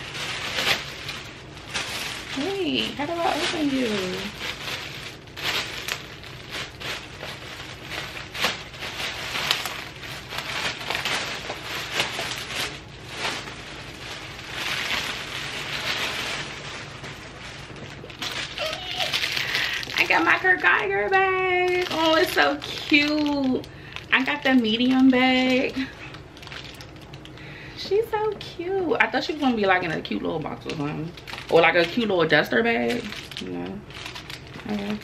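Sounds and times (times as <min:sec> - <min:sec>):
plastic packaging crinkling: 0:00.0 - 0:35.0.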